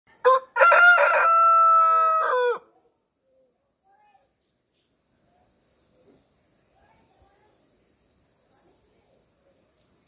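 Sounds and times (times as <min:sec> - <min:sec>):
rooster crowing: 0:00.2 - 0:02.7.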